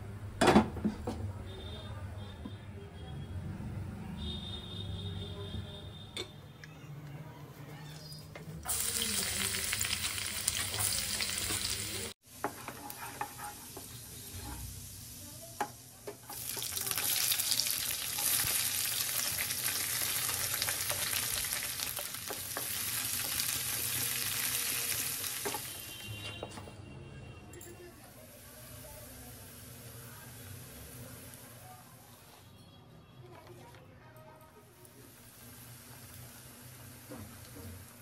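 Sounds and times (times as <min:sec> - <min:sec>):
vegetables sizzling in hot oil: 0:08.7 - 0:26.0, 0:28.1 - 0:32.0, 0:34.8 - 0:38.0.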